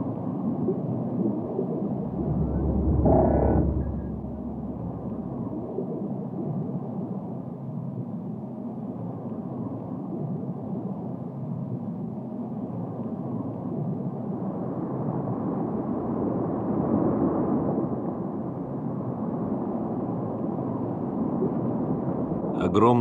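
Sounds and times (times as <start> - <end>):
dredge drill rumbling: 1.9 - 5.7.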